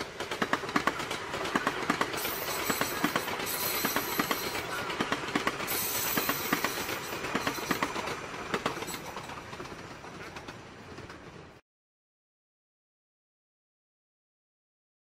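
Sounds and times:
train wheels clacking over rail joints: 0.0 - 11.4
train rumble: 0.0 - 11.6.

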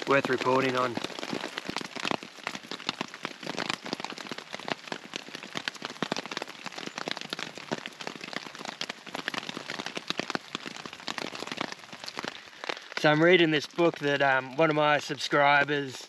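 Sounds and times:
rain on a tarp: 0.0 - 16.0.

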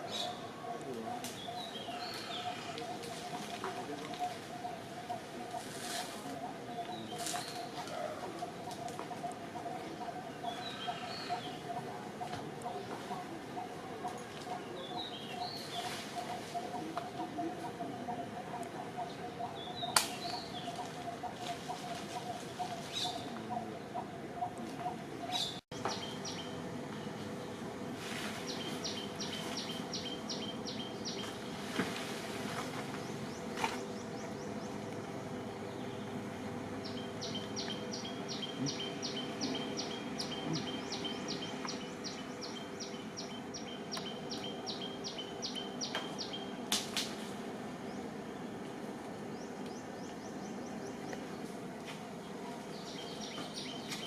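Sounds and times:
bird chirping: 0.0 - 5.2, 8.5 - 18.2, 25.2 - 27.6, 28.4 - 31.5, 32.9 - 46.6, 52.2 - 54.0
low background hum: 0.0 - 54.0.

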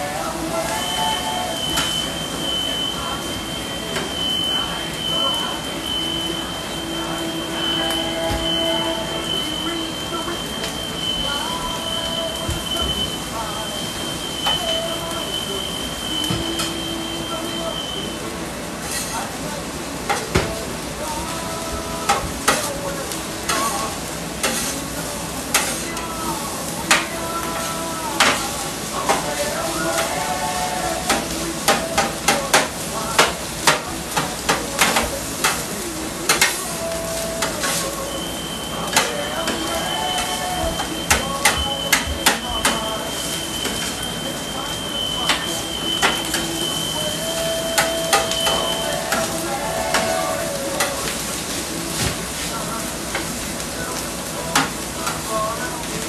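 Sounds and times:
thin high tone: 0.0 - 33.3, 35.8 - 51.9
rice sizzling: 0.0 - 56.0
spatulas scraping on griddle: 18.8 - 19.4, 20.0 - 44.1, 44.7 - 53.7
metal spatulas striking griddle: 23.5 - 24.8, 25.5 - 26.0, 31.1 - 35.7, 36.3 - 36.6.

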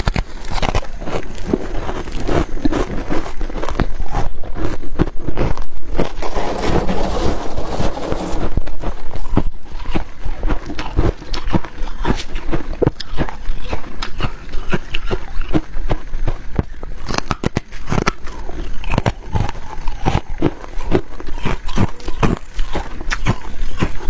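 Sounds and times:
chewing ice: 0.0 - 24.0
hands scraping packed frost: 5.9 - 9.5.

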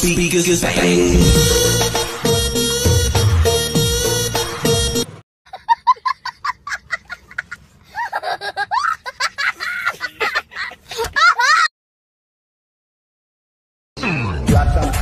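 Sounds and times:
dance music: 0.4 - 5.1
boy laughing: 5.5 - 11.7.

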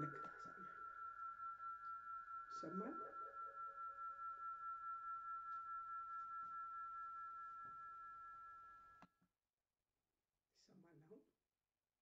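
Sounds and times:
high ringing tone: 0.0 - 9.1.

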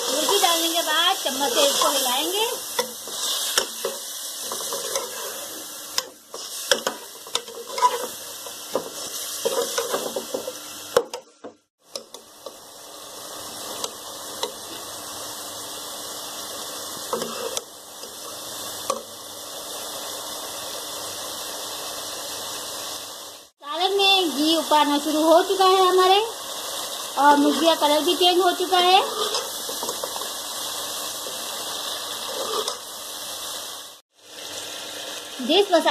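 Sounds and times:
chicken sizzling in hot fat: 0.0 - 35.9
metal spoon scraping a pot: 4.4 - 5.5, 6.3 - 8.2, 29.0 - 30.1, 32.2 - 32.8.

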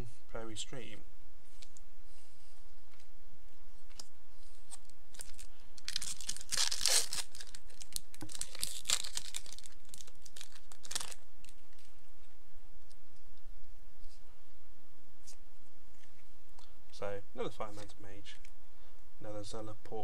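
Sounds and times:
foil wrapper tearing and crumpling: 4.7 - 11.9.

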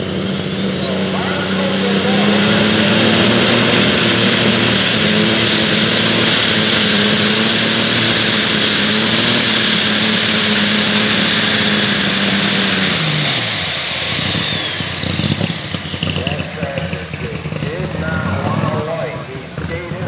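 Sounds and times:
tractor engine at full throttle: 0.0 - 20.0.

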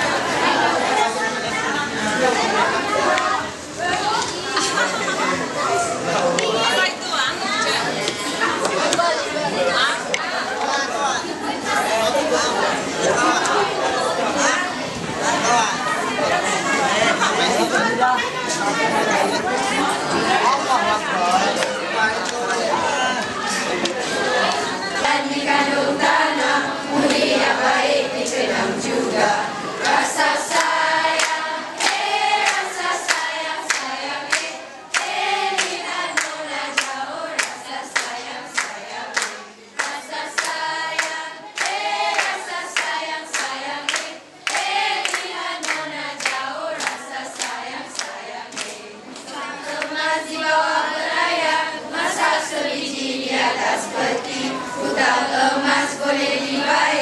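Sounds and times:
students singing together: 0.0 - 57.0
hands clapping: 7.6 - 9.1, 10.1 - 10.8, 21.6 - 22.5, 23.2 - 25.2, 29.8 - 50.0.

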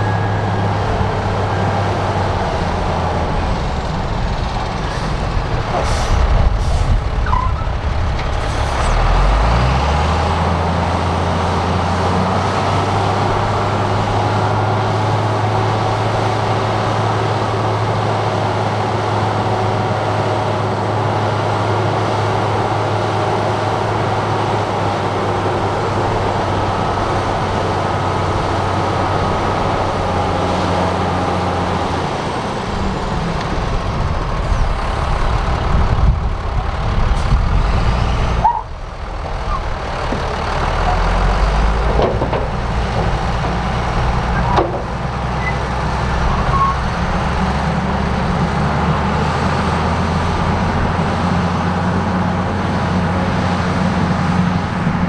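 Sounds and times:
large diesel engine running: 0.0 - 55.0.

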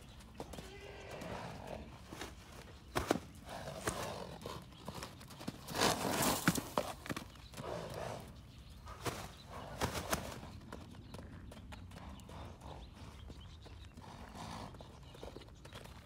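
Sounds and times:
hoofbeats on sand: 0.0 - 16.0.

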